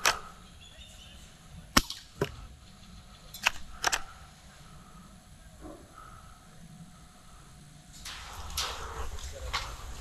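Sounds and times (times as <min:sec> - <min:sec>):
airsoft guns firing: 0:01.7 - 0:02.4.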